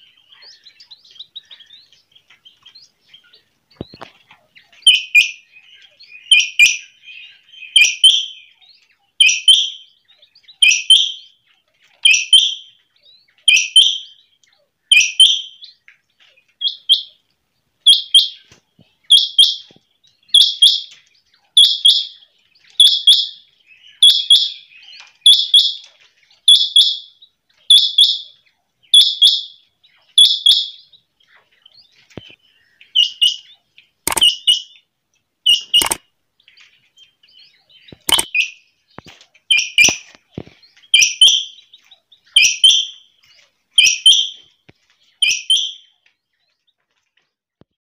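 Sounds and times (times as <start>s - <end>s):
sharp click: 34.1s - 34.4s, 35.7s - 36.0s, 37.9s - 38.3s.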